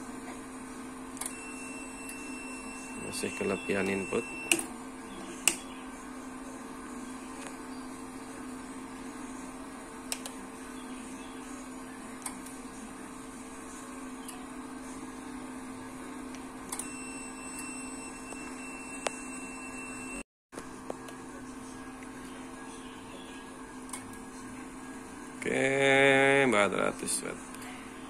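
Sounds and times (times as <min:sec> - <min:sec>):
cooling fans: 0:00.0 - 0:28.0
power supply hum: 0:00.0 - 0:28.0
high-pitched tone: 0:01.2 - 0:04.7.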